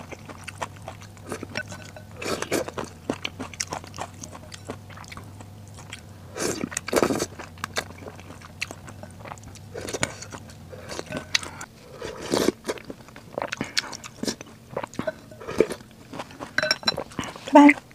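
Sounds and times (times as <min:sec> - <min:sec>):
wet chewing clicks: 0:00.0 - 0:17.9
person slurping noodles: 0:01.2 - 0:02.8, 0:11.8 - 0:12.8.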